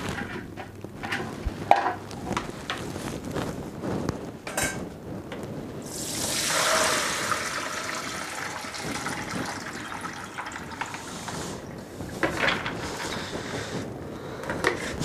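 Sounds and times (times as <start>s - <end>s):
tap water running into bowl: 5.8s - 12.4s.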